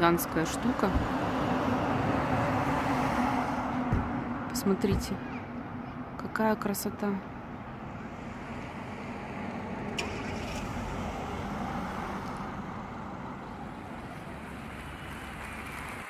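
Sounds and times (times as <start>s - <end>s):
car passing by: 0.5s - 4.4s, 7.8s - 16.0s.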